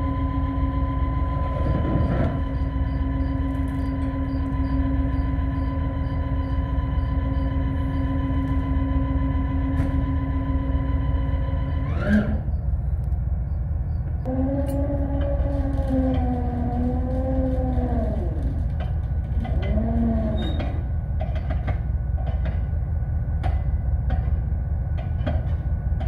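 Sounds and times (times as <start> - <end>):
rising whine: 0.0 - 18.8
low rumble: 0.0 - 26.0
winch humming: 14.2 - 21.0
clunk: 18.6 - 22.8, 23.4 - 26.0.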